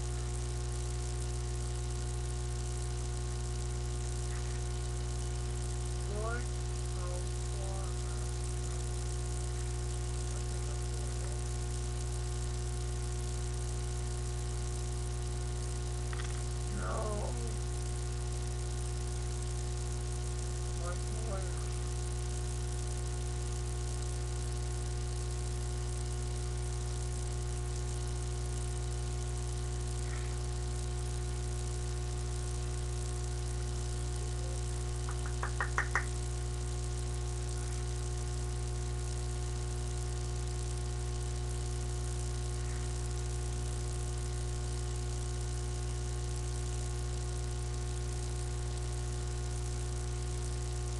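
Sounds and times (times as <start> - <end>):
electrical hum: 0.0 - 50.9.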